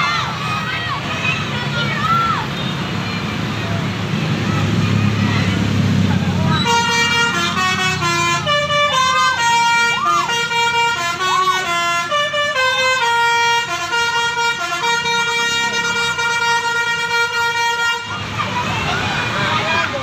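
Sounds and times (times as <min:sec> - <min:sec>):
multi-tone bus horn melody: 0:02.6 - 0:18.4.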